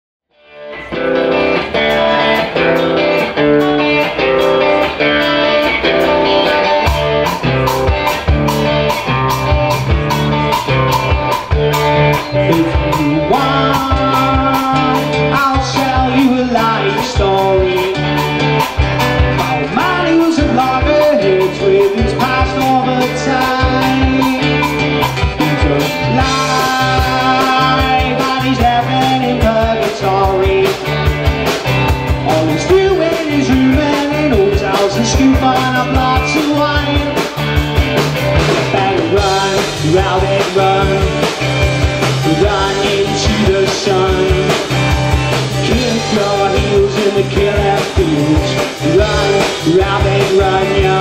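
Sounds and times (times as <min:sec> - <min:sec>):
live rock band playing: 0:00.3 - 0:51.0
drum kit steady beat: 0:00.8 - 0:51.0.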